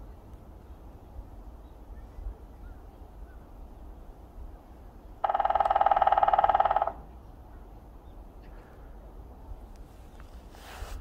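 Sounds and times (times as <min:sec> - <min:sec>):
woodpecker drumming on wood: 0:05.2 - 0:07.1.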